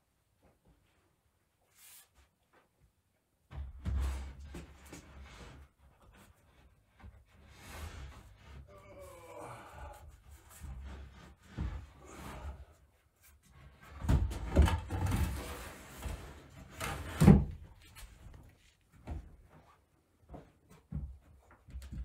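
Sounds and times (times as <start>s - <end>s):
wood bumping and scraping on wood: 13.4s - 22.0s.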